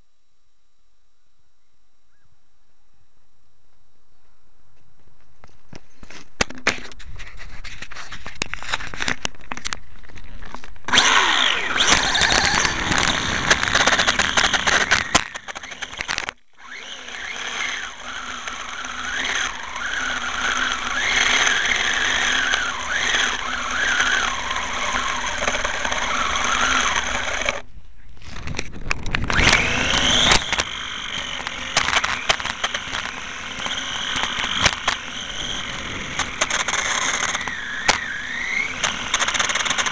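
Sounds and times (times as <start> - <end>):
tyre and rattle noise on tarmac: 4.8 - 16.5, 17.2 - 39.9
electric motor whine: 10.9 - 27.7, 28.8 - 39.9.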